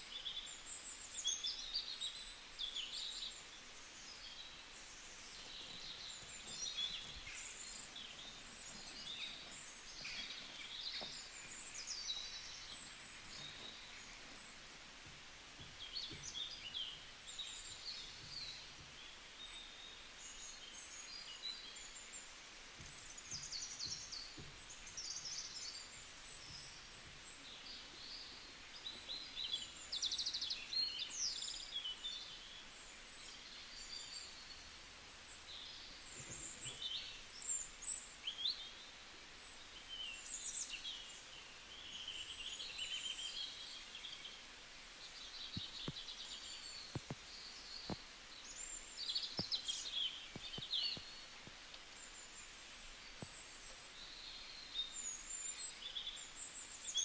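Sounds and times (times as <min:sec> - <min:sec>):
faint background hiss: 0:00.0 - 0:57.0
birds chirping and trilling: 0:01.2 - 0:14.9.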